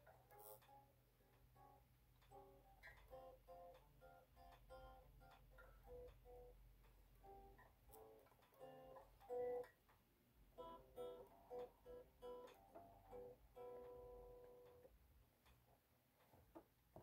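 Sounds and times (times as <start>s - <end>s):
electric guitar chords: 7.2s - 9.7s, 10.6s - 14.9s.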